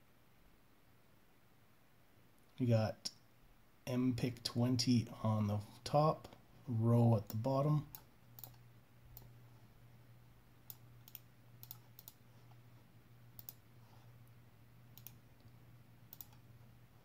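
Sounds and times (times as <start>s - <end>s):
low steady hum: 0.0s - 17.0s
mouse and keyboard clicks: 10.7s - 12.6s, 13.4s - 13.6s, 15.0s - 16.4s.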